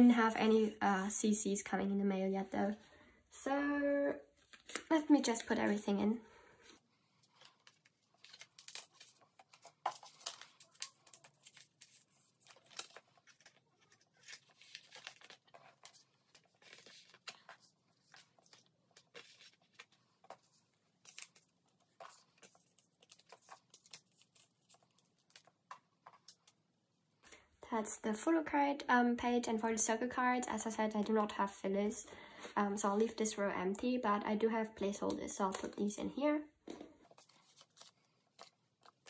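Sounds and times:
plastic sleeves crinkling: 4.3s - 5.9s, 6.6s - 26.6s, 36.7s - 39.0s.

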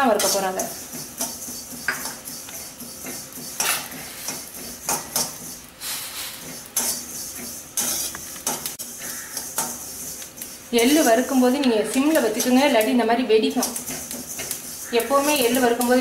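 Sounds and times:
metal spoon scraping pan: 0.0s - 16.0s
seeds hissing in pan: 0.0s - 16.0s.

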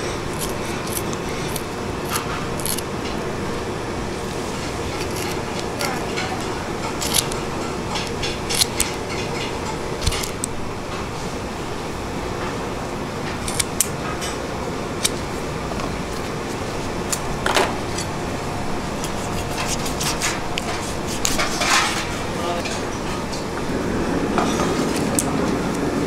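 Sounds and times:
knife and tools clicking and knocking: 0.0s - 2.9s, 4.8s - 10.5s, 13.4s - 14.4s
steady hum: 0.0s - 26.0s.

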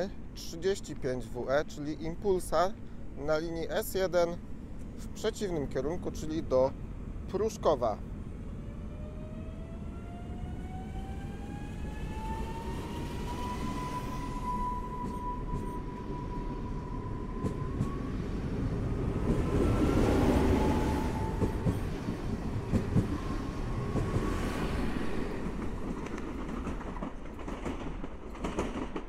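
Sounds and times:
train wheels rumbling on rails: 7.3s - 29.0s.

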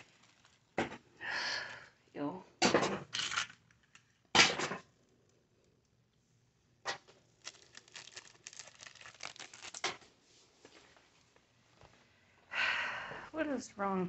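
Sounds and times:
paper and wrappers rustling: 0.0s - 0.8s, 6.9s - 12.0s.

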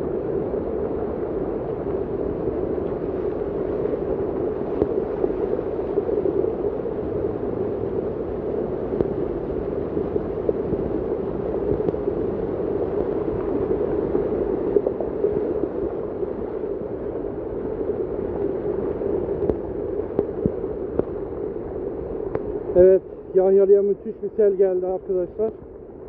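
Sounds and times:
floodwater rushing: 0.1s - 25.4s
heavy rain: 3.0s - 15.0s.

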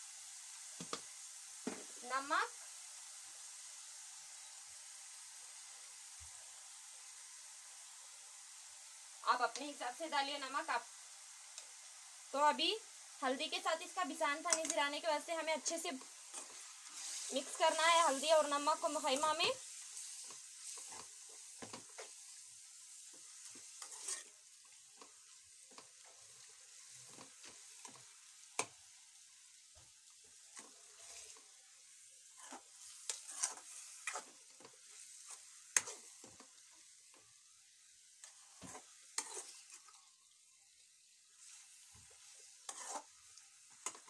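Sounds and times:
meat sizzling in a pan: 0.0s - 44.0s
ladle scraping and clinking on pan: 42.7s - 43.1s.

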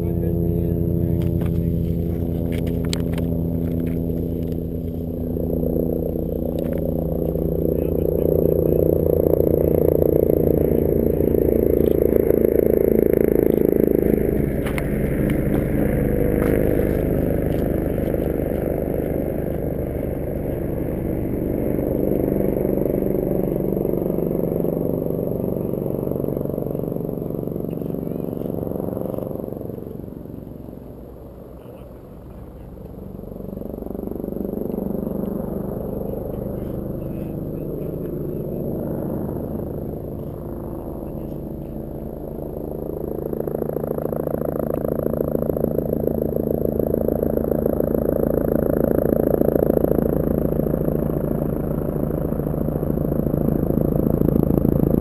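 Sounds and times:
engine pulsing hum: 0.0s - 55.0s.

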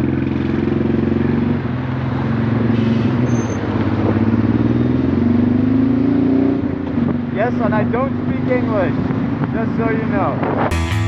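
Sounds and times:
motorcycle engine running: 0.0s - 2.6s.

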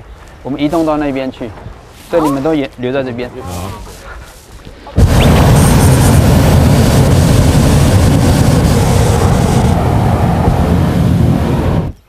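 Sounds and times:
propane burner blast: 5.0s - 12.0s.

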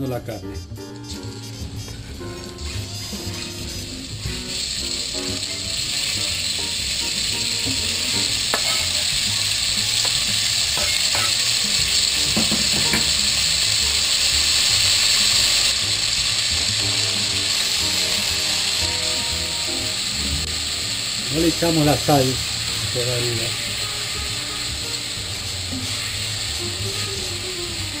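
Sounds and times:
meat sizzling in oil: 1.0s - 28.0s
spatula knocking in pot: 12.3s - 13.2s.

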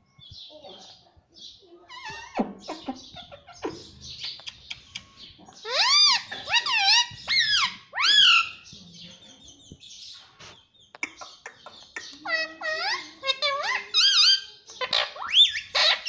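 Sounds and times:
parakeet chattering and clicking: 1.9s - 8.3s, 10.8s - 16.0s
parakeet loud calls: 5.6s - 8.6s, 12.2s - 16.0s.

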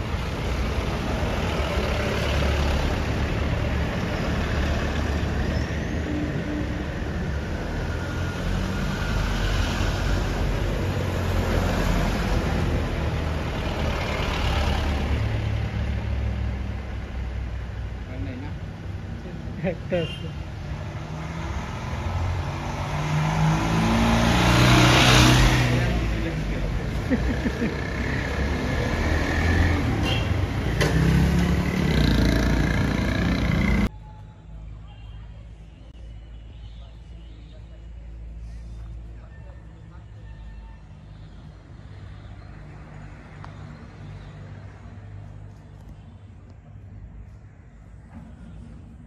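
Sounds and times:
cars driving past: 0.0s - 33.9s.

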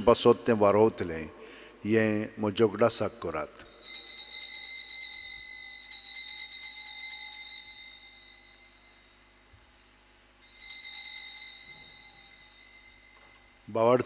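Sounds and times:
altar bells jingling: 3.3s - 9.4s, 10.4s - 14.0s.

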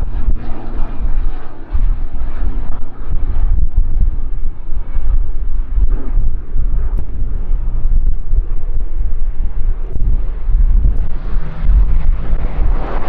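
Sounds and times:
propeller plane rumble: 0.0s - 13.0s
wind buffeting microphone: 0.0s - 13.0s.

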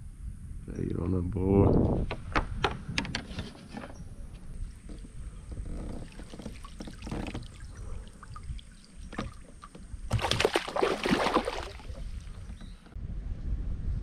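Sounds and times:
water splashing and sloshing: 4.5s - 13.0s
small knocks: 4.8s - 7.7s.

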